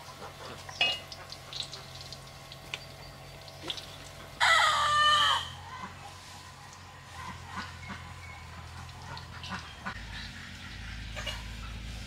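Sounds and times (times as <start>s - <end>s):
rooster crowing: 4.4s - 5.8s.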